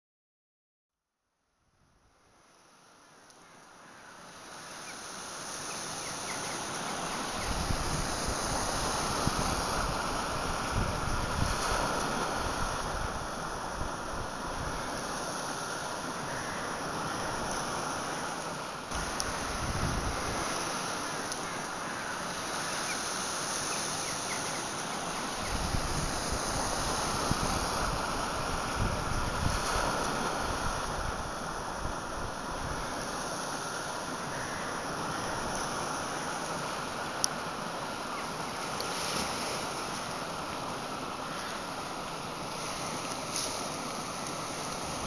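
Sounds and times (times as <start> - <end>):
sea washing: 4.2 - 45.0
surf breaking on rocky shore: 4.4 - 45.0
wind buffeting microphone: 7.4 - 14.9, 18.9 - 20.6, 25.3 - 32.9.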